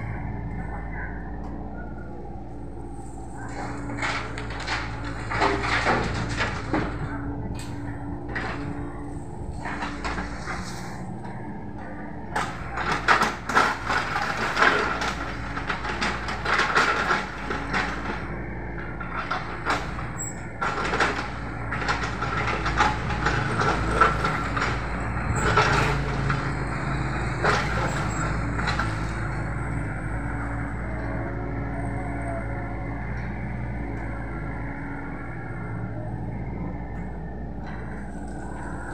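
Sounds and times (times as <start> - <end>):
diesel engine running: 0.0 - 38.9
bucket clanking and scraping debris: 3.5 - 7.7.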